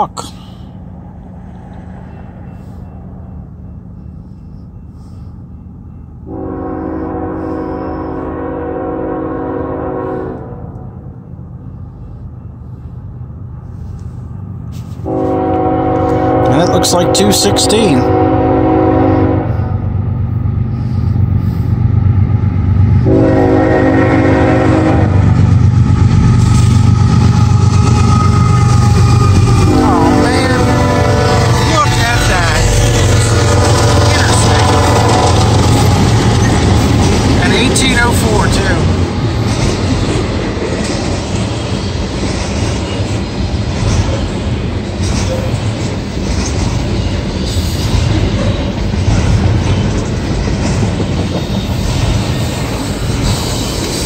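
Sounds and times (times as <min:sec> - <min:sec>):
diesel freight train rumbling: 0:00.0 - 0:54.0
locomotive horn: 0:06.3 - 0:10.9, 0:15.0 - 0:19.8, 0:23.0 - 0:25.2, 0:28.0 - 0:35.8.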